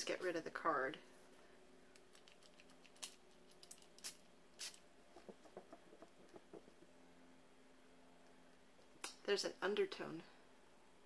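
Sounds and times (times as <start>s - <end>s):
perfume atomizer spraying: 3.9s - 4.8s.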